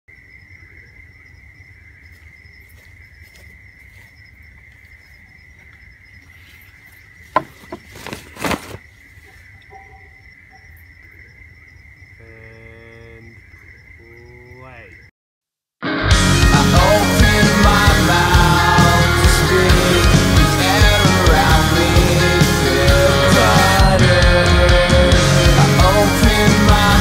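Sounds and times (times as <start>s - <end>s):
night insects calling: 0.1s - 15.1s, 16.6s - 27.0s
cape flapping and swishing: 7.9s - 8.8s.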